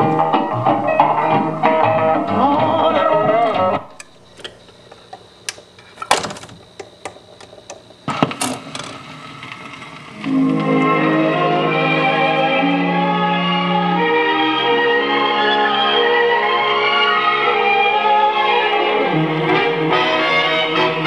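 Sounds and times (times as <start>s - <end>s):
sung record with guitar: 0.0s - 4.1s, 7.9s - 21.0s
clicks and knocks: 3.9s - 9.0s.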